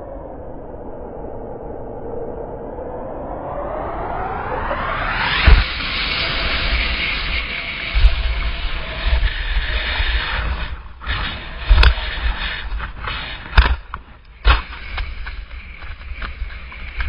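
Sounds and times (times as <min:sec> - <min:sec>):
wind buffeting microphone: 0:03.9 - 0:17.0
skis scraping snow: 0:05.4 - 0:17.0.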